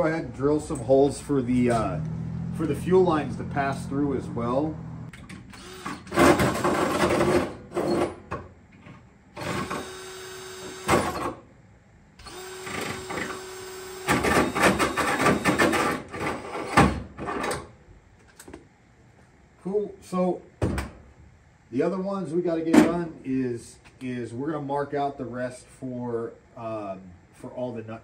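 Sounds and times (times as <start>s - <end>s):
cordless drill cutting metal: 5.5s - 6.7s, 9.4s - 11.4s, 12.2s - 16.0s.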